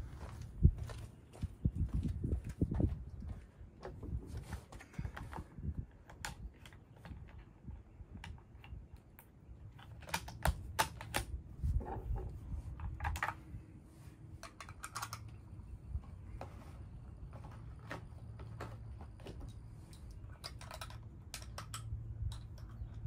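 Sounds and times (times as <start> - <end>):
rifle and gear clicks on wood: 4.7 - 11.4, 14.4 - 15.4, 17.4 - 23.0.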